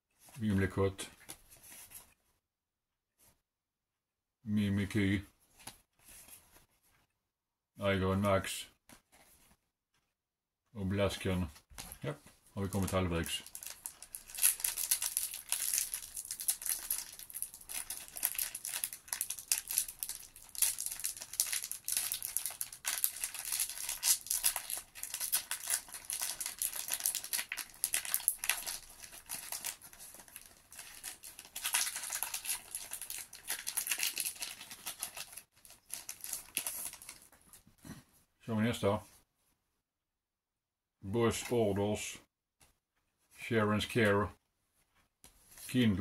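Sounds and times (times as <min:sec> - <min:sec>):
plastic wrapper crinkling and tearing: 0:12.6 - 0:37.7.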